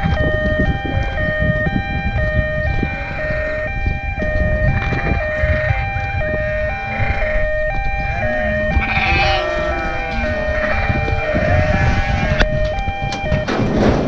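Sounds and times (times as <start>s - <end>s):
hi-lo two-note siren: 0.0s - 13.6s
steady low rumble: 0.0s - 14.0s
sheep bleating: 8.4s - 12.3s.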